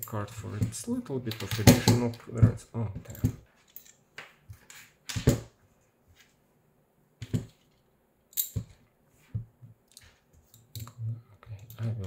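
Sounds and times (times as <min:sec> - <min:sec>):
plastic parts clicking and knocking: 0:00.6 - 0:03.9.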